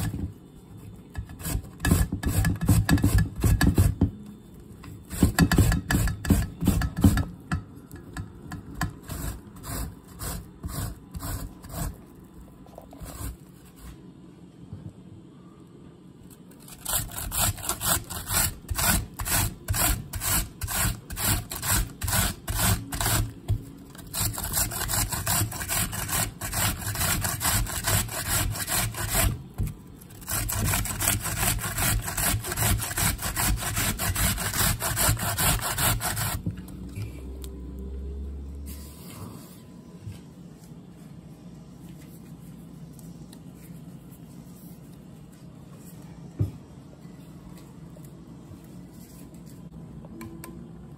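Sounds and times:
onion grating rasping: 0:01.1 - 0:04.0, 0:08.9 - 0:12.0, 0:16.6 - 0:29.4, 0:30.0 - 0:36.4.

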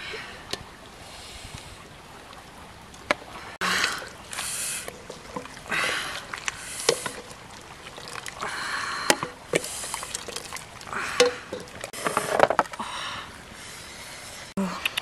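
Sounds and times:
broth sloshing in pot: 0:03.6 - 0:12.0.

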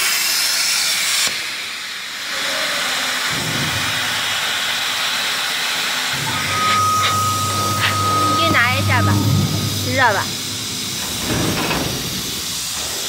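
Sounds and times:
plasma torch hissing: 0:00.0 - 0:13.0
low hum: 0:06.1 - 0:13.0.

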